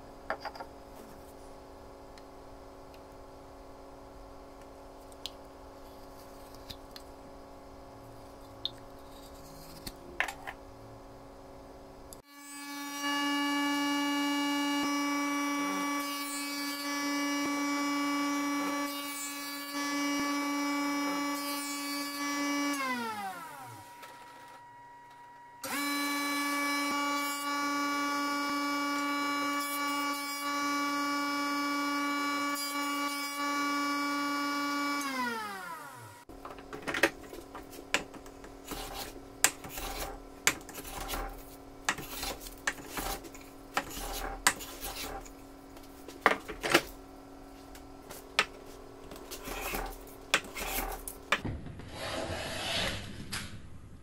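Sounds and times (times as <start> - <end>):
thickness planer whining: 12.3 - 36.3
faint hum: 23.6 - 25.6
hand tool scraping wood: 37.2 - 45.3, 48.1 - 51.4.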